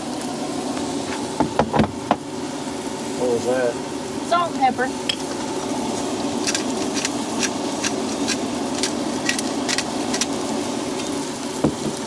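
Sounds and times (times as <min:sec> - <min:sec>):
food sizzling on griddle: 0:00.0 - 0:12.0
seasoning bottle clicks and rattles: 0:06.4 - 0:10.4.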